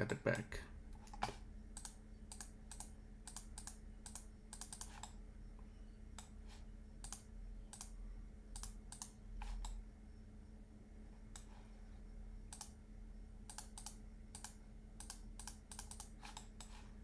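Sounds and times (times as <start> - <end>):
keyboard and mouse clicks: 0.0 - 5.2, 6.1 - 6.4, 7.0 - 9.8, 12.5 - 12.8, 13.5 - 16.8
faint steady hum: 0.0 - 17.0.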